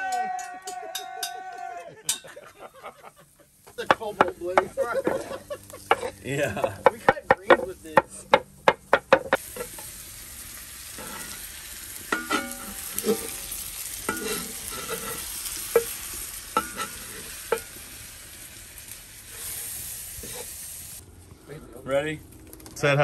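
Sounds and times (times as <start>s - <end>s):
steak sizzling in skillet: 3.3s - 21.0s
spatula clinking against pan: 14.1s - 15.2s.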